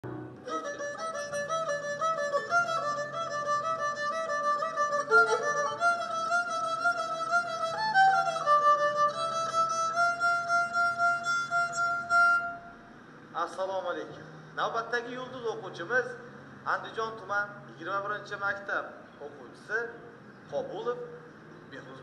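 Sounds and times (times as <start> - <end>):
bowed string melody: 0.0 - 12.8
soft low accompaniment: 0.0 - 12.8.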